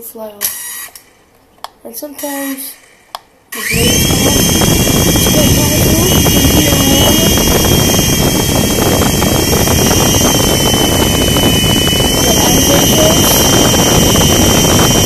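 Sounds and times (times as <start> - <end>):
toy helicopter rotor whirring: 0.4 - 1.2, 2.2 - 15.0.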